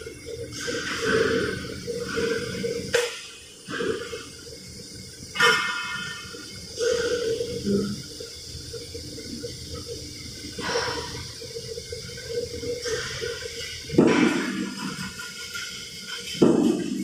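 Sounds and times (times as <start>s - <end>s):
metal plates clanking: 12.8s - 17.0s.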